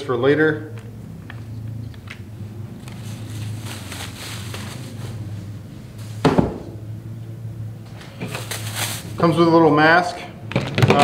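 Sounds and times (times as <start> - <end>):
steady low hum: 0.0 - 10.5
bubble wrap crinkling: 2.8 - 5.6, 8.2 - 9.2
heavy thump: 6.2 - 6.8.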